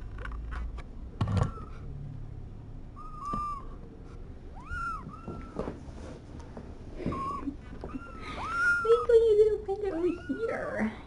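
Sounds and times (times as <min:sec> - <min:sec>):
kittens mewing: 0:03.0 - 0:03.8, 0:04.5 - 0:05.8, 0:07.0 - 0:11.0.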